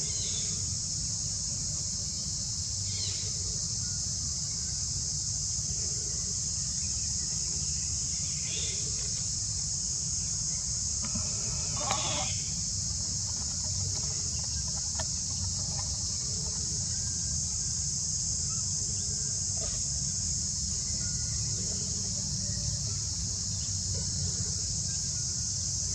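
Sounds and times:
insect chorus drone: 0:00.0 - 0:25.9
faint short animal calls: 0:11.0 - 0:12.6
loud animal call: 0:11.0 - 0:12.6.

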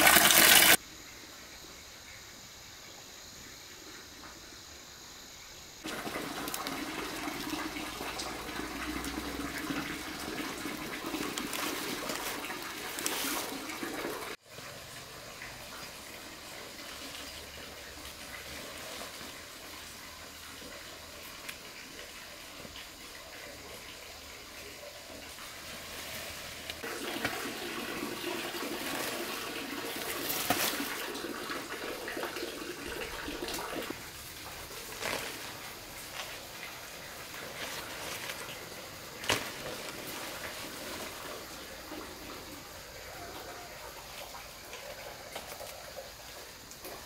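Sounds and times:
water rushing and splashing: 0:00.0 - 0:00.8.

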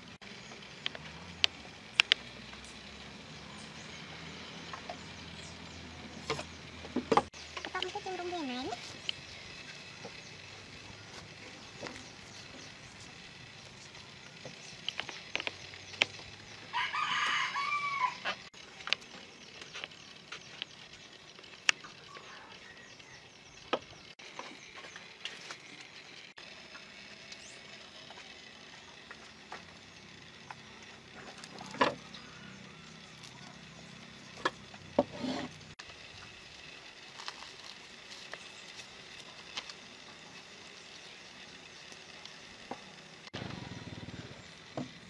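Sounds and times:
small clicks and taps: 0:00.8 - 0:02.8
rooster crowing: 0:16.7 - 0:18.4.

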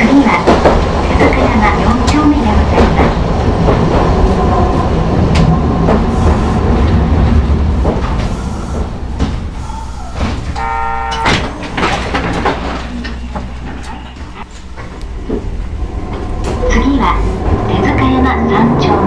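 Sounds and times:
tram motor and gear hum: 0:00.0 - 0:19.0
brief tone: 0:10.6 - 0:14.5.

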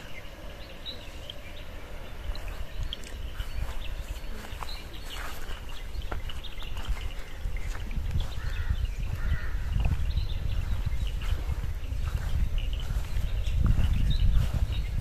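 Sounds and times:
bird chirps: 0:00.0 - 0:15.0
steady low rumble: 0:00.0 - 0:15.0.

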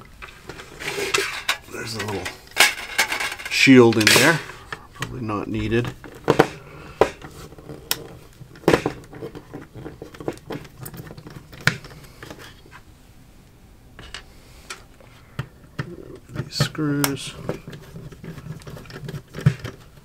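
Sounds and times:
small parts handled: 0:00.2 - 0:12.8.

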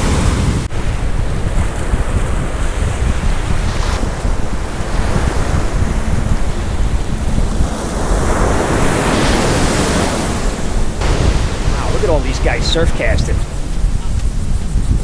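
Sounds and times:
ocean surf breaking: 0:00.0 - 0:15.0
wind buffeting microphone: 0:00.0 - 0:15.0.

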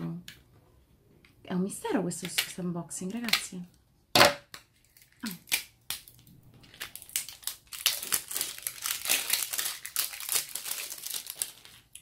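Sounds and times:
plastic film crinkling: 0:04.6 - 0:12.0.

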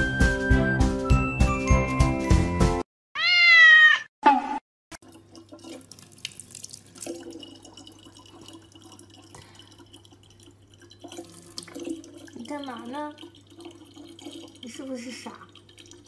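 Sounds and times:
high-pitched cry: 0:03.2 - 0:04.1
tap water running into plastic bottle: 0:05.0 - 0:16.0.

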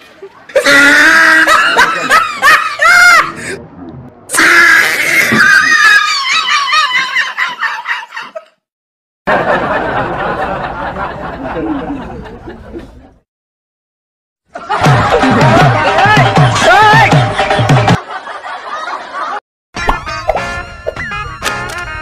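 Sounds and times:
high-pitched laughter: 0:00.5 - 0:03.5, 0:05.3 - 0:08.6.

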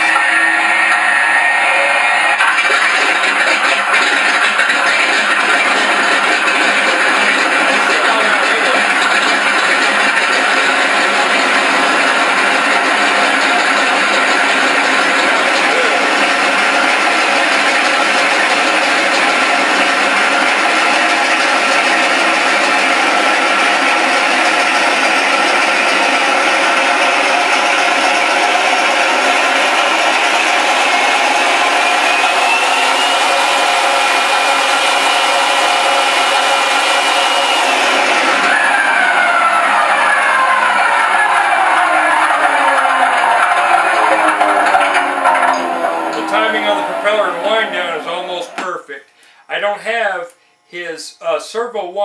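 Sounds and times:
thin whine: 0:00.0 - 0:03.4, 0:10.9 - 0:51.8
radial engine sound from speakers: 0:00.0 - 0:51.6.

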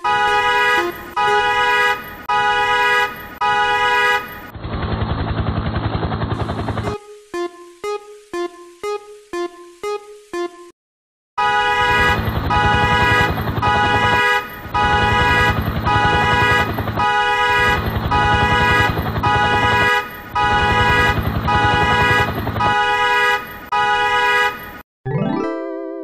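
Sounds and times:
locomotive air horn blasts: 0:00.0 - 0:04.5, 0:11.4 - 0:24.6
low engine rumble: 0:11.8 - 0:22.8.

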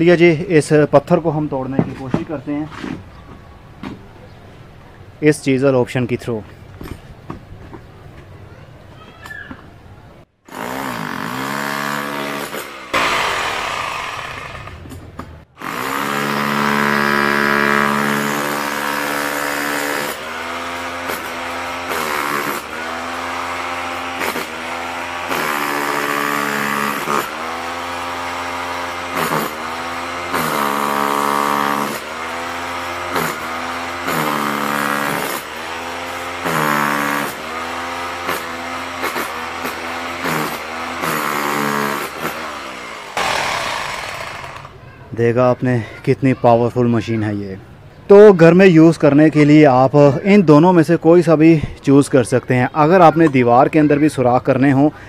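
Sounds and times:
rotary hammer chiselling concrete: 0:10.5 - 0:14.9, 0:15.6 - 0:44.8.

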